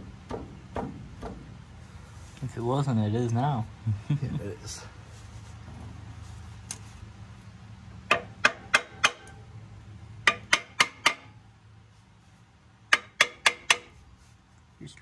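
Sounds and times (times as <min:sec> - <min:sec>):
hammer tapping metal: 0:08.1 - 0:09.4, 0:10.2 - 0:11.3, 0:12.9 - 0:14.0.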